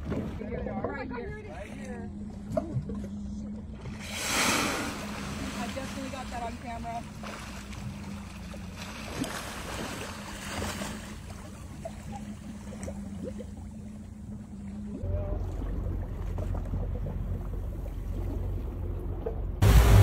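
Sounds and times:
water wash: 0:03.9 - 0:13.7, 0:15.0 - 0:20.0
boat motor idling: 0:11.0 - 0:20.0.

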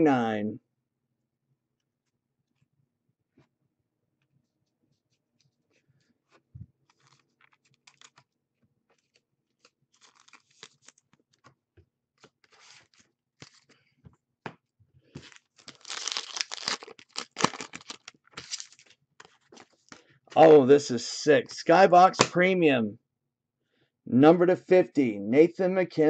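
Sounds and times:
cards clicking and rustling: 0:06.8 - 0:08.3, 0:08.9 - 0:11.6, 0:12.2 - 0:13.8, 0:15.2 - 0:20.1
foil wrapper crinkling and tearing: 0:06.9 - 0:08.2, 0:09.9 - 0:11.1, 0:15.2 - 0:19.4.

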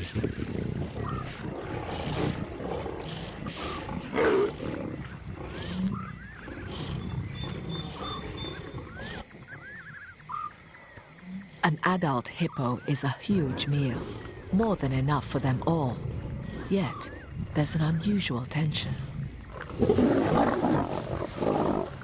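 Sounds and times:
lions growling and snarling: 0:00.0 - 0:11.6, 0:13.3 - 0:18.0, 0:18.9 - 0:22.0.

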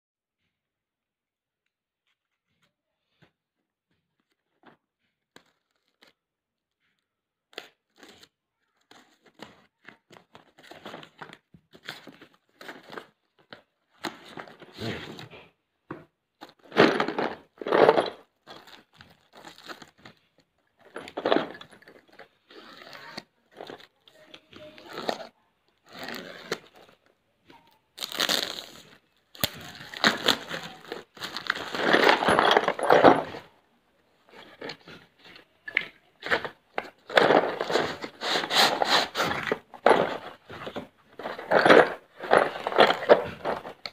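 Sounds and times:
packaging torn and crinkled: 0:28.0 - 0:31.8.

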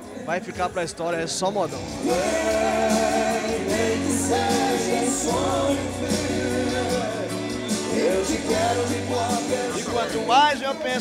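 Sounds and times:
band with bass guitar: 0:01.8 - 0:10.9
men singing long notes: 0:02.0 - 0:10.7.

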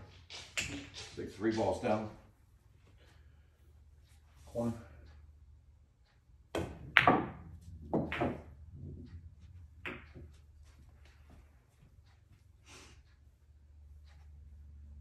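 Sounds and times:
billiard balls clacking: 0:00.1 - 0:01.7, 0:06.5 - 0:10.5
ball dropping into pocket: 0:06.6 - 0:09.0
cue striking ball: 0:06.6 - 0:09.1, 0:09.8 - 0:10.2.

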